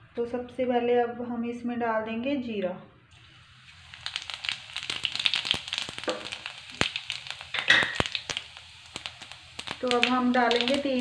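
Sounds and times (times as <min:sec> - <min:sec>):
seeds sizzling in hot oil: 0:03.1 - 0:11.0
seeds crackling and popping: 0:03.7 - 0:11.0.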